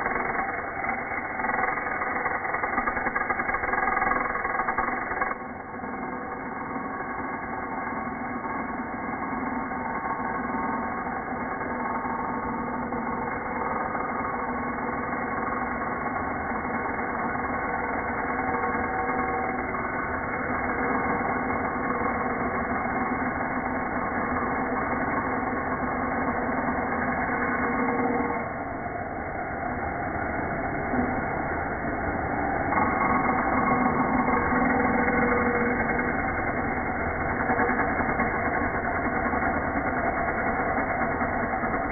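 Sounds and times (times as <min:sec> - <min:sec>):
slowed angle grinder cutting pipe: 0:00.0 - 0:41.9.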